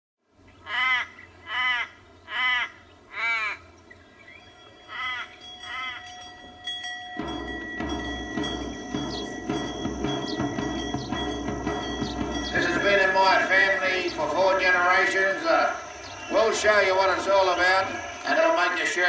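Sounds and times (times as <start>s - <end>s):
crow cawing: 0.6s - 3.7s, 4.9s - 6.1s
high unchanging tones: 4.2s - 19.0s.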